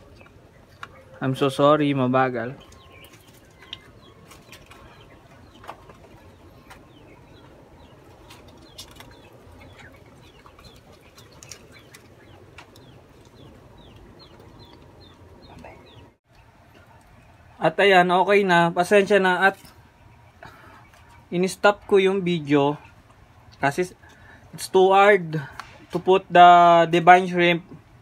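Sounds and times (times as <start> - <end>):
small bird chirping: 2.6 - 16.5.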